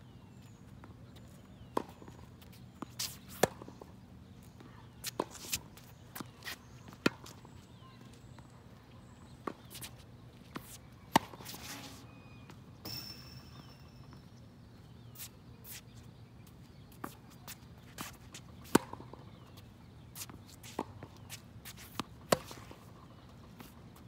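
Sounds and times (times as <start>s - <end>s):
shoe squeaks: 1.2s - 3.5s, 4.7s - 8.1s, 9.5s - 14.4s
tennis ball bouncing: 1.5s - 4.0s, 5.0s - 7.5s, 9.2s - 14.3s, 18.1s - 19.5s, 20.2s - 23.0s.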